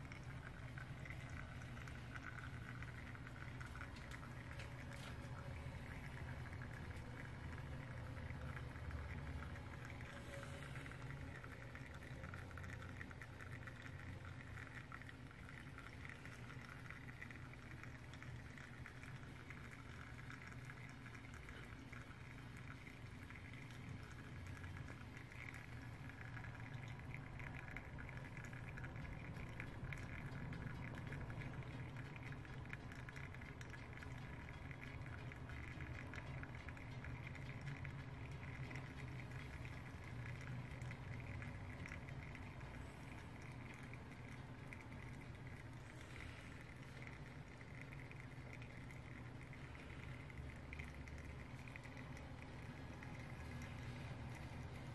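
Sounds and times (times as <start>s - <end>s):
coffee maker bubbling: 0.0s - 54.9s.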